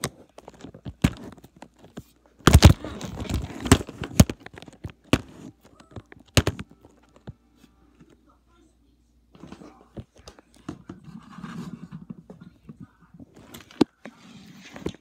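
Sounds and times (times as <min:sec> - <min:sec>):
rubbing and bumping: 0:00.0 - 0:05.5
tablet handling knocks and clicks: 0:00.0 - 0:07.4.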